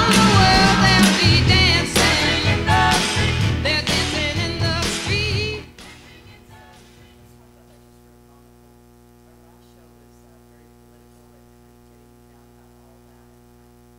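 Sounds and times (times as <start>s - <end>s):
electrical mains hum: 5.7s - 13.9s.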